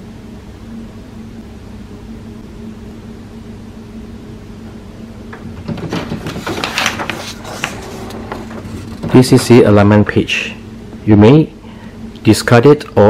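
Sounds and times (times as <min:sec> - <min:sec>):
low steady hum: 0:00.0 - 0:13.0
paper crackling and rustling: 0:05.4 - 0:09.6.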